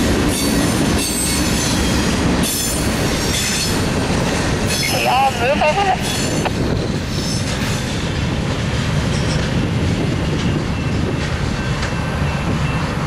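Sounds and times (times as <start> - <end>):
train wheels rumbling on rails: 0.0 - 13.0
train wheel squeal: 0.3 - 3.9, 4.6 - 5.1, 6.0 - 8.1, 9.1 - 9.7, 10.3 - 13.0.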